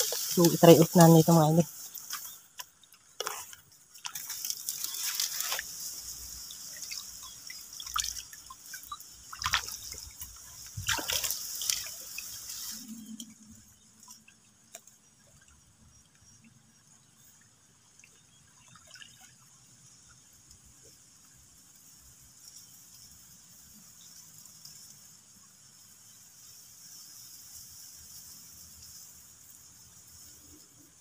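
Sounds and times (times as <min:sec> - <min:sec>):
water splashing from wading: 0:00.0 - 0:13.2, 0:17.8 - 0:19.7.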